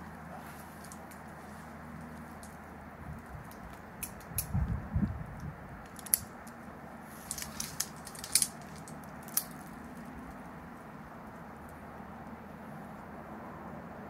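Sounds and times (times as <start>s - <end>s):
climbing gear clicks and scrapes: 0.4s - 2.6s, 5.8s - 10.2s.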